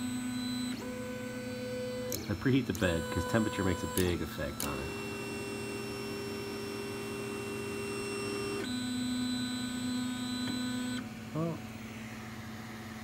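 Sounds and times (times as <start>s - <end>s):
stepper motors whining: 0.4s - 8.6s.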